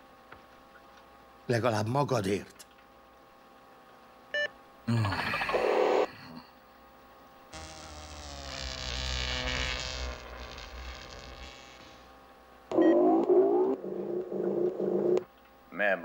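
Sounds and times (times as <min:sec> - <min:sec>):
electronic buzzing drone: 0:04.3 - 0:06.3, 0:07.5 - 0:15.3.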